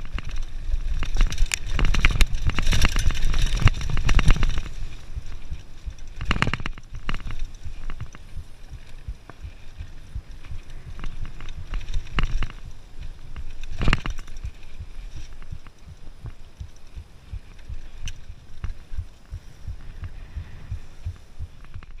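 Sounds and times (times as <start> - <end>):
bike hard jolt: 0.0 - 22.0
bike rattling over dirt trail: 0.0 - 22.0.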